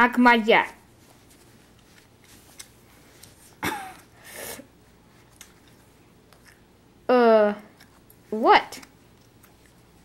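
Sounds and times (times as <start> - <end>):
breathy hiss: 4.1 - 4.8.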